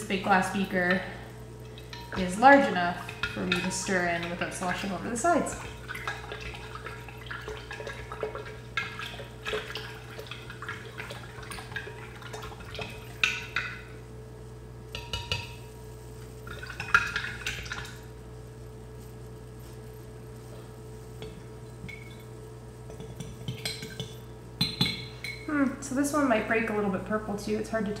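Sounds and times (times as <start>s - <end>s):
liquid swishing: 1.3s - 14.0s.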